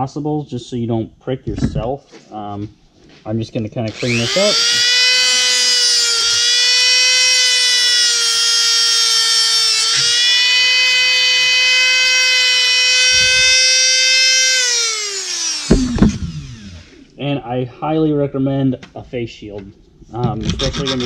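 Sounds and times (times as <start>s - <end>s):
rotary tool whine: 3.9s - 17.1s, 20.4s - 21.0s.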